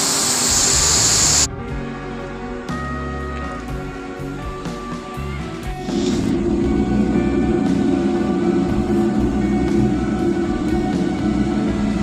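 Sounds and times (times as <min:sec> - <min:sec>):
background music with sustained notes: 0:00.0 - 0:12.0
dense low drone: 0:05.8 - 0:12.0.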